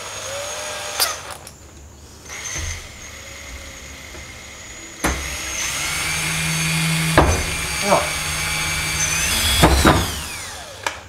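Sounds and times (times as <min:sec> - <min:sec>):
drill whining: 0:00.0 - 0:01.5, 0:02.2 - 0:11.0
sharp knock: 0:07.1 - 0:07.6.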